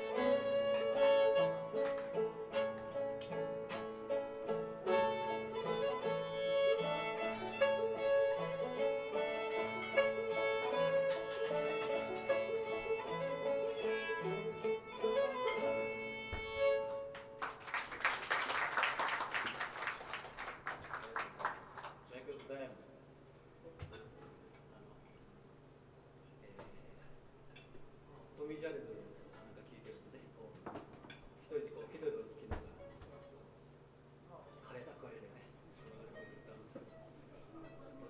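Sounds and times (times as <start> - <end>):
fiddle playing a tune: 0.0 - 17.4
plucked-string accompaniment: 0.0 - 17.4
applause: 17.1 - 22.1.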